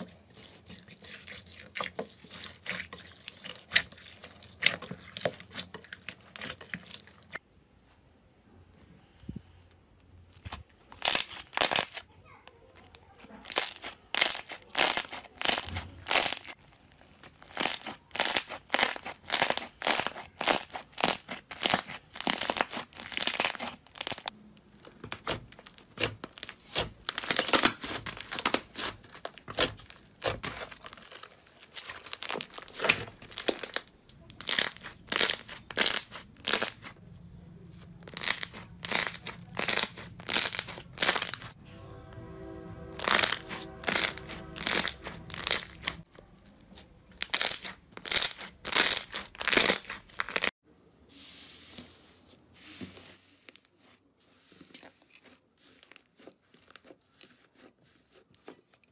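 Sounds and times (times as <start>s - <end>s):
slime crackling when squeezed: 11.0s - 12.0s, 13.4s - 16.6s, 17.2s - 24.3s, 38.0s - 41.5s.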